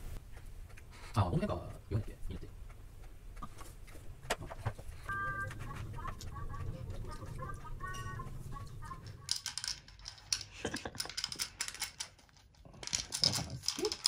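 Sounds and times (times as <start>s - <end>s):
dry kibble rattling in rubber toy: 6.0s - 14.0s.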